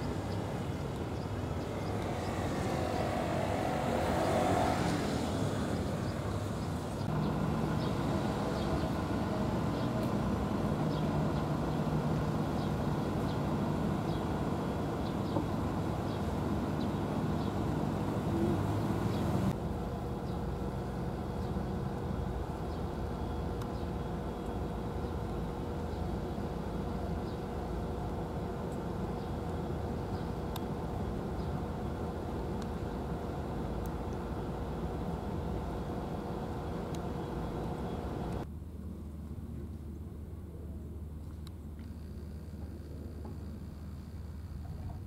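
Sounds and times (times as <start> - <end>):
road traffic rumble: 0.0 - 45.0
vehicle passing: 1.2 - 19.6.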